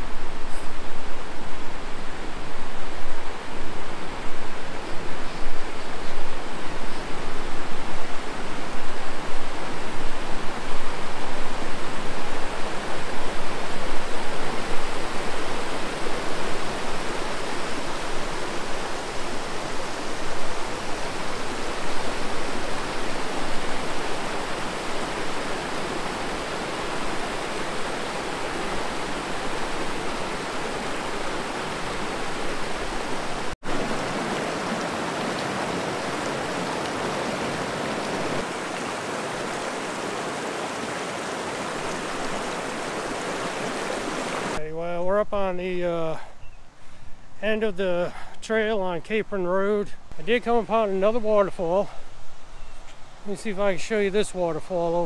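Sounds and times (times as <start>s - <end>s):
river water rushing: 0.0s - 44.6s.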